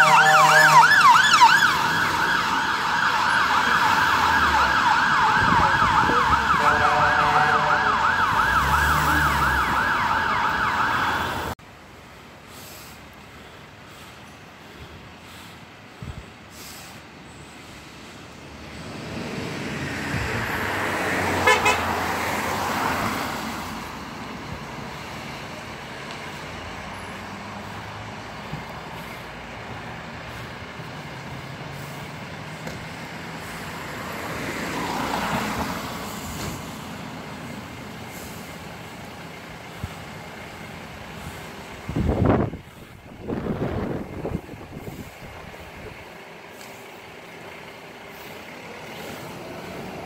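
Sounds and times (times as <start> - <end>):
tyre hiss on wet road: 12.4 - 15.7, 16.5 - 18.2, 33.2 - 39.1, 44.7 - 50.0
low engine rumble: 23.7 - 34.1, 35.9 - 50.0.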